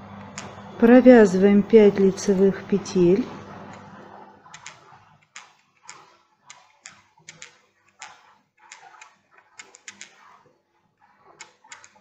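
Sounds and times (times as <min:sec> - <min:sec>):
knitting needles clicking: 0:04.5 - 0:04.8, 0:05.4 - 0:10.2, 0:11.4 - 0:12.0.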